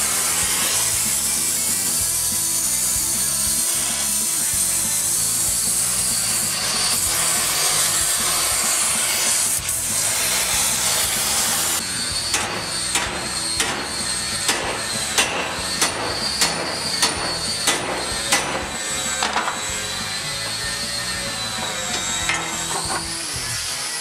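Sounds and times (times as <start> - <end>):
torch hissing: 0.0 - 24.0
hammer striking steel pipe: 12.3 - 19.6, 21.6 - 23.1.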